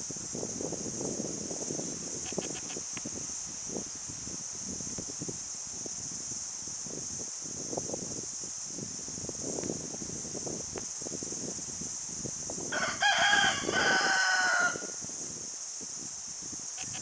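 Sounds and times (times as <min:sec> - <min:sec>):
rooster crowing: 0:12.7 - 0:15.0.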